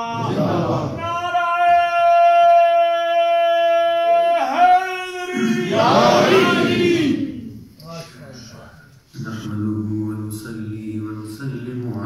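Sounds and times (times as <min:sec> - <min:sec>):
group singing together: 0:00.0 - 0:01.0, 0:05.3 - 0:07.8.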